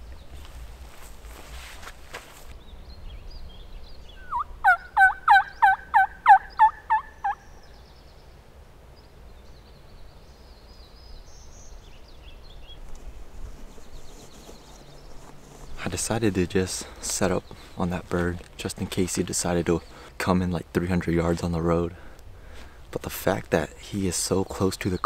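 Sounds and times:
turkey call hen yelps: 4.2s - 7.4s.

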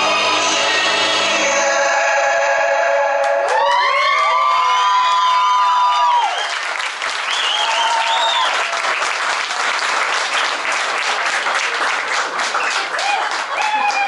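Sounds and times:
audience clapping and cheering: 2.9s - 14.0s
people whooping: 3.2s - 9.0s, 12.8s - 14.0s.

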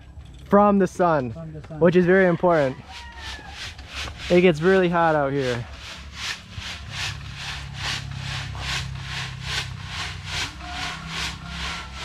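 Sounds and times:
sand rasping through wire sieve: 2.5s - 12.0s.

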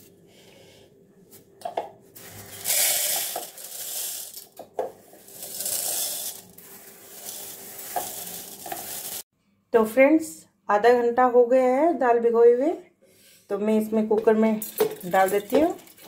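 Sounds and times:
lentils pouring into plastic bowl: 2.2s - 4.5s, 5.2s - 9.2s.

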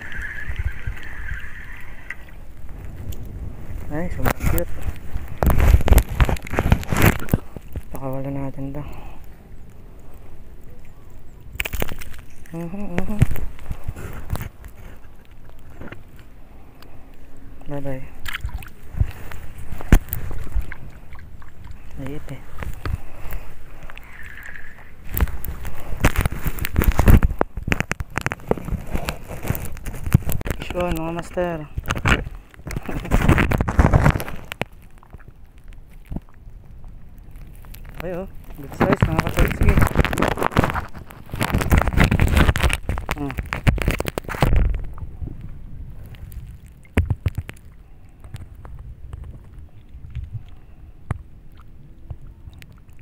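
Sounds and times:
wind and handling noise on microphone: 0.0s - 53.0s.

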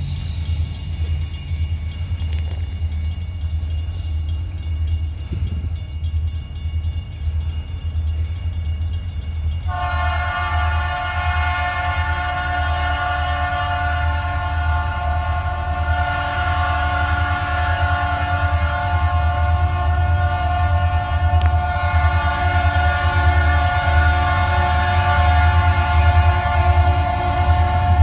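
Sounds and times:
locomotive air horn blast: 9.7s - 28.0s.

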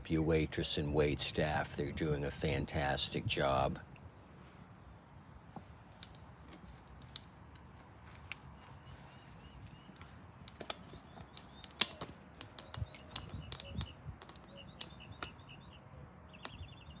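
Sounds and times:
small birds chirping: 8.0s - 17.0s
sharp clicks: 9.9s - 15.5s.

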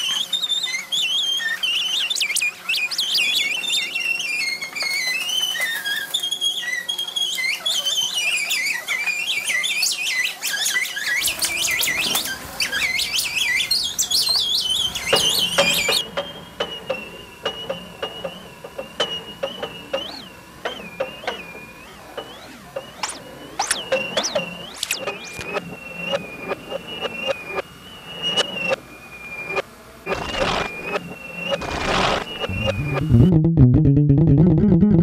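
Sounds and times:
sliding high electronic whistles: 0.0s - 33.4s.

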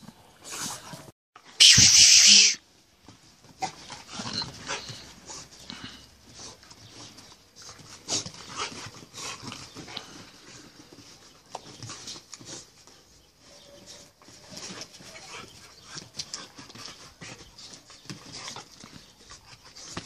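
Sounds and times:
loud harsh burst: 1.6s - 2.6s
dogs play-fighting: 3.0s - 20.0s.

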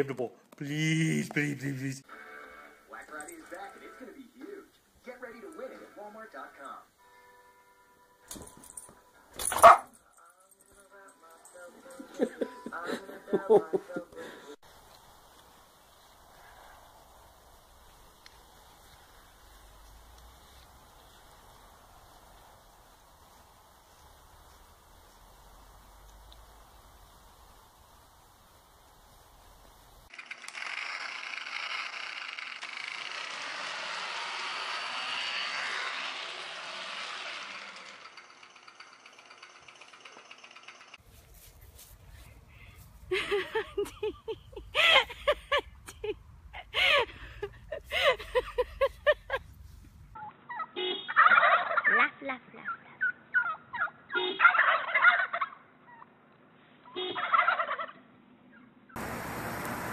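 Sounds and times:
toy motorcycle rattling on wood floor: 30.1s - 41.1s
short turkey calls: 50.2s - 51.9s, 53.0s - 56.1s, 56.8s - 58.0s
turkeys gobbling: 50.2s - 52.0s, 52.6s - 56.1s, 57.0s - 58.0s.

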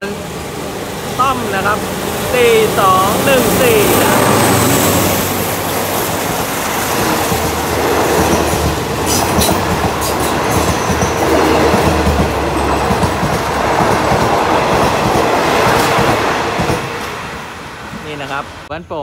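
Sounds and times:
diesel locomotive passing: 0.0s - 18.7s
train wheels clacking over rail joints: 5.6s - 18.3s.

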